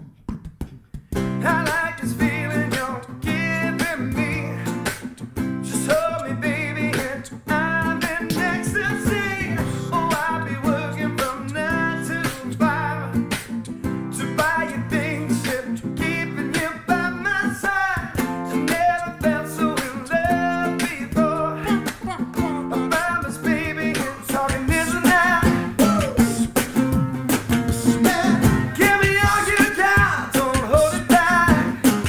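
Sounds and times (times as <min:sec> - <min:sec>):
steady percussive beat: 0:00.0 - 0:01.9, 0:07.8 - 0:10.3, 0:18.0 - 0:32.0
strummed classical guitar: 0:01.1 - 0:32.0
man singing: 0:01.4 - 0:05.0, 0:05.6 - 0:13.4, 0:14.1 - 0:26.9, 0:27.6 - 0:32.0.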